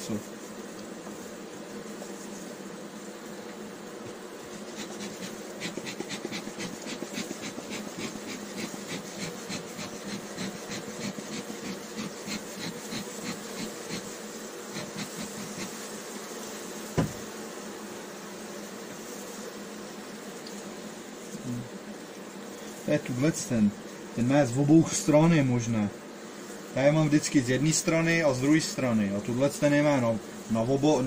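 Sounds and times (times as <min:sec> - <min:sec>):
bees humming: 0:00.0 - 0:31.0
soft hissing ticks: 0:00.1 - 0:01.2, 0:03.4 - 0:16.1, 0:20.4 - 0:23.2
sharp knock: 0:17.0 - 0:17.2.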